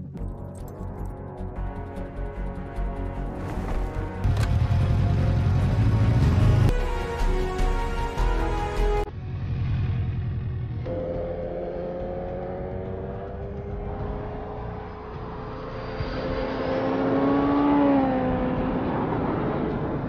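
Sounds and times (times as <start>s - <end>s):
motorcycle engine running hard: 9.1s - 20.0s.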